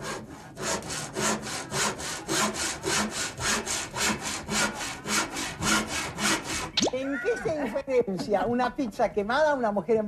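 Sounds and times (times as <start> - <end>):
rhythmic saw-like rasping: 0.0 - 6.8.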